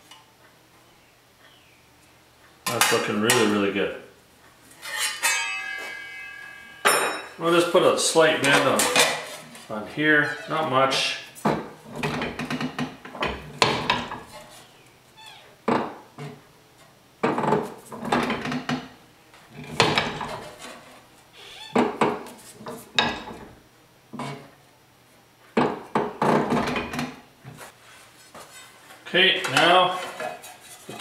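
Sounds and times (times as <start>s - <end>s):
sheet steel clanking: 4.7s - 10.7s.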